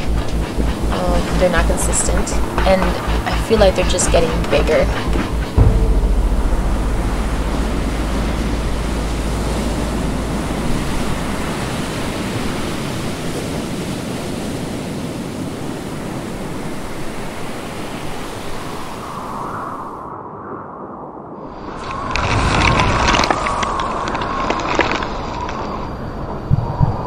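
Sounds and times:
ocean waves breaking: 0:00.0 - 0:19.9
strong wind: 0:00.0 - 0:27.0
wind rumble on microphone: 0:00.0 - 0:27.0.

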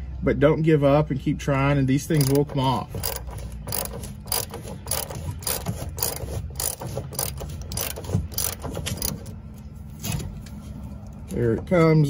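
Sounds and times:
socket ratchet clicking: 0:02.1 - 0:09.3.

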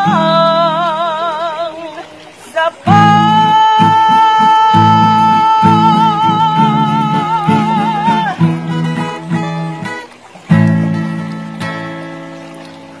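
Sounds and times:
person singing: 0:00.0 - 0:09.1
strummed acoustic guitar: 0:00.0 - 0:13.0.

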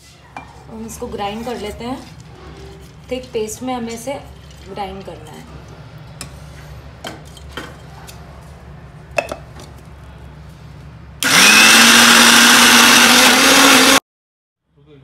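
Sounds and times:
mixer grinder running: 0:11.2 - 0:14.0.

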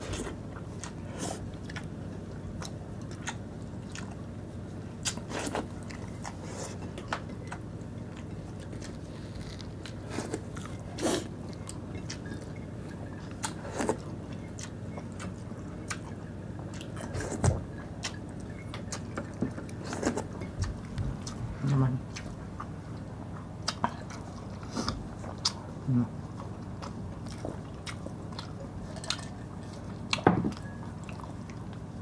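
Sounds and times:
low steady hum: 0:00.0 - 0:32.0
mouth chewing and lip smacks: 0:13.1 - 0:21.5, 0:22.1 - 0:25.7, 0:26.3 - 0:31.8.

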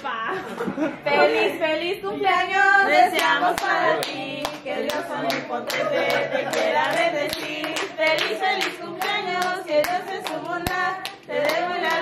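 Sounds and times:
group singing a birthday tune: 0:00.0 - 0:12.0
people clapping along: 0:03.0 - 0:12.0.

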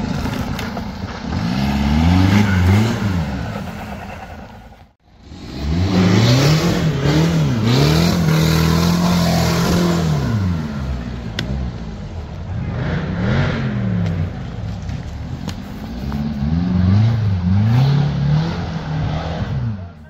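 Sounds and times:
engine revving hard: 0:01.2 - 0:04.2, 0:05.2 - 0:11.7, 0:12.5 - 0:14.3, 0:15.9 - 0:20.0.

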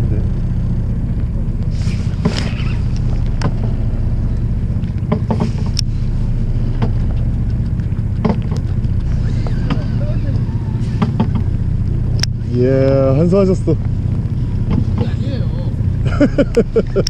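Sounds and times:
boat engine droning: 0:00.0 - 0:17.0
light clicks and knocks: 0:04.8 - 0:05.9, 0:06.7 - 0:09.9.

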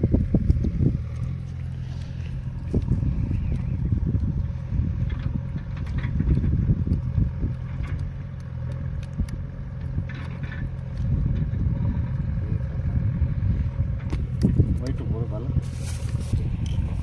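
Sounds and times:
low steady rumble: 0:00.0 - 0:17.0
hands mixing bait in bucket: 0:00.1 - 0:11.1, 0:15.6 - 0:17.0.

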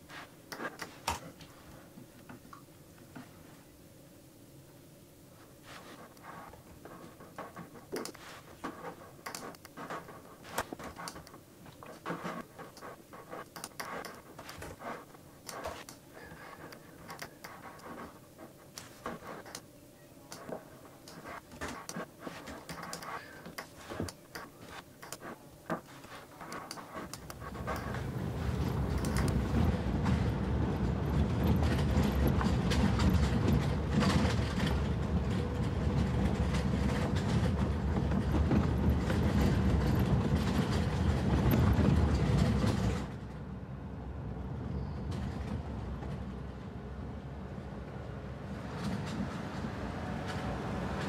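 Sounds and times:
laptop keyboard clicking: 0:09.2 - 0:14.8, 0:28.8 - 0:29.5.

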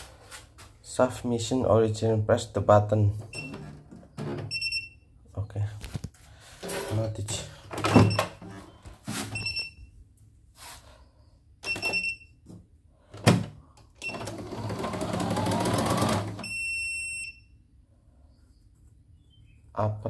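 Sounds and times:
sewing motor whine: 0:14.0 - 0:16.5
long warning beep: 0:16.4 - 0:17.6.

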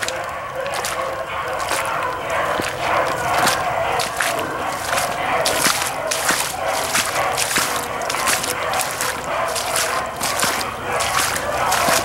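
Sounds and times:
beagles baying: 0:00.0 - 0:12.0.

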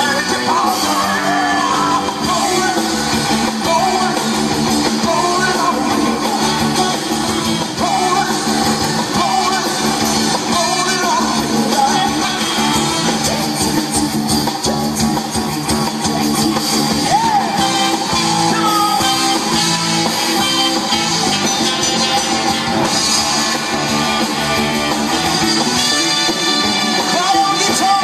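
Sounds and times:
live soul band playing: 0:00.0 - 0:28.0
person singing lead vocals: 0:00.0 - 0:28.0.

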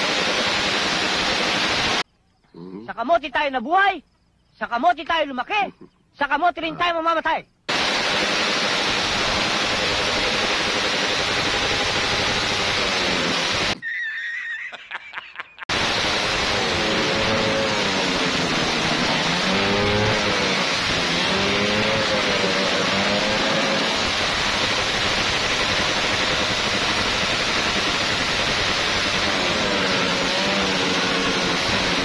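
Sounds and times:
motorcycle engine revving: 0:00.0 - 0:02.0, 0:07.7 - 0:13.8, 0:15.7 - 0:32.0.

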